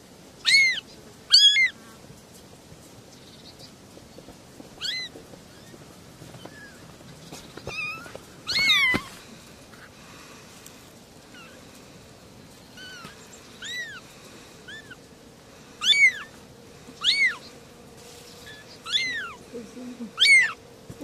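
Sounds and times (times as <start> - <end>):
kittens mewing: 0.4 - 1.8, 4.8 - 5.7, 7.7 - 9.9, 11.2 - 11.8, 12.7 - 15.1, 15.8 - 17.6, 18.4 - 20.6.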